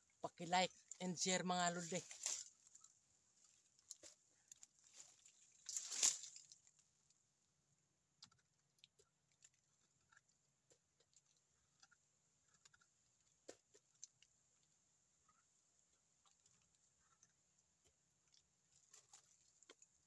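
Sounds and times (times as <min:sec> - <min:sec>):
teeth gnawing bark: 0:08.0 - 0:20.0.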